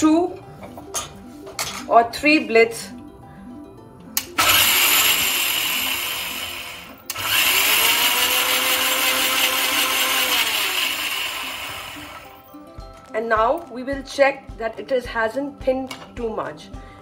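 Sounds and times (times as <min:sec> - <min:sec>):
mixer grinder grinding rice: 0:04.4 - 0:12.4.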